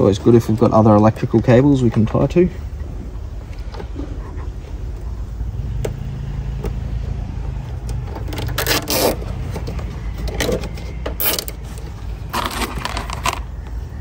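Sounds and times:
cable ties ratcheting: 7.8 - 9.3.

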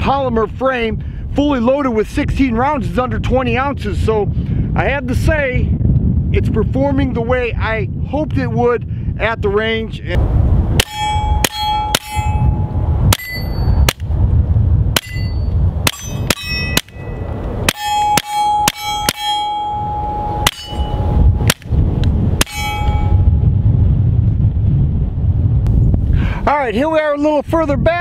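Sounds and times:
steel target clanging: 10.8 - 14.0, 15.0 - 21.7, 22.4 - 23.3.

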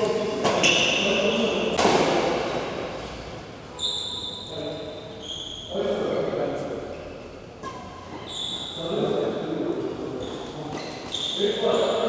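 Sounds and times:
shoes squeaking on court: 0.5 - 1.5, 3.8 - 4.5, 5.2 - 5.7, 7.0 - 8.8, 10.1 - 12.0
rackets hitting shuttlecock: 1.7 - 2.5.

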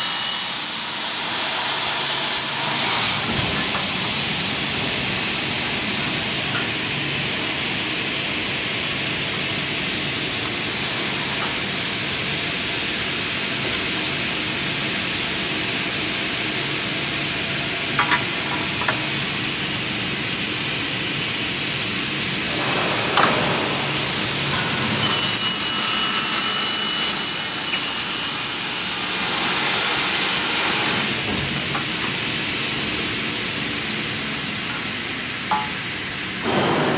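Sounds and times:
saw blade screeching through metal: 0.0 - 3.3, 24.0 - 31.2.

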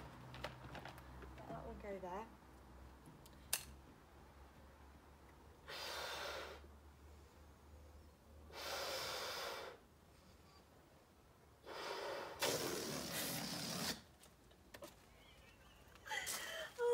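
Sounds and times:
person blowing up a balloon: 11.6 - 14.1.

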